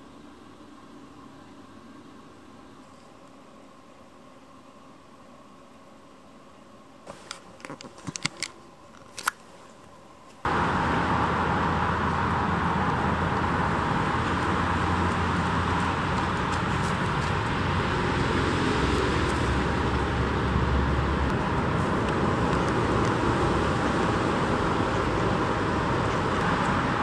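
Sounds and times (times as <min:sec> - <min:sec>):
road traffic rush: 0:10.5 - 0:27.0.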